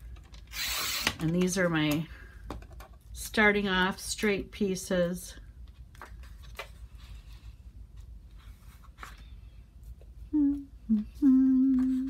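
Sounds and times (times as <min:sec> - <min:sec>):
paper rustling: 0:05.9 - 0:09.4
person humming: 0:10.2 - 0:12.0.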